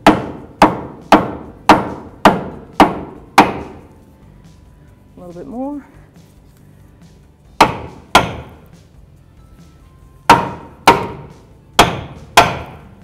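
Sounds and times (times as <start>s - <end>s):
rubber mallet knocking metal: 0.0s - 3.8s, 7.6s - 8.7s, 10.2s - 13.0s.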